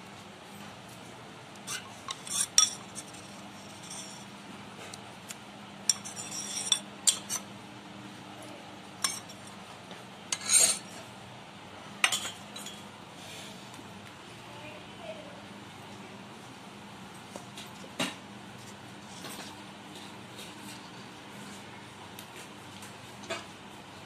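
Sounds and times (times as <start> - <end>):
metal spoon clinking on steel: 2.1 - 4.2, 5.9 - 7.4, 9.0 - 9.4.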